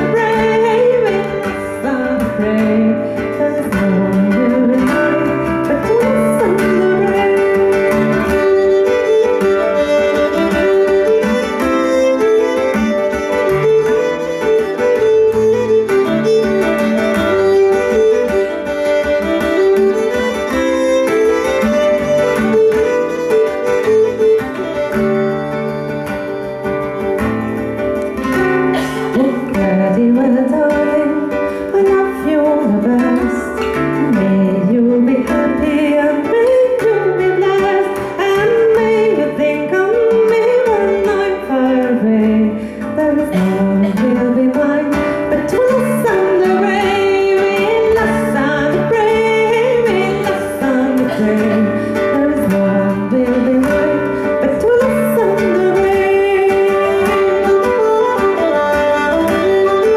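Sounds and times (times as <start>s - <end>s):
woman singing: 0.0s - 25.1s, 28.2s - 59.9s
acoustic guitar: 0.0s - 59.9s
fiddle: 0.0s - 59.9s.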